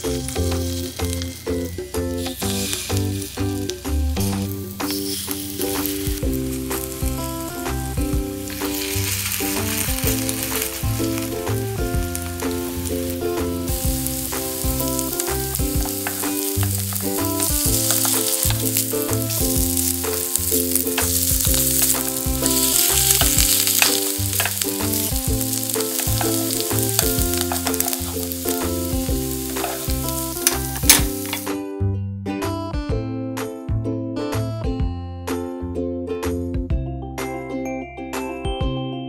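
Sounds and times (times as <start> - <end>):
pancakes sizzling in oil: 0.0 - 31.5
wooden spatula scraping: 8.4 - 12.8, 13.7 - 31.5.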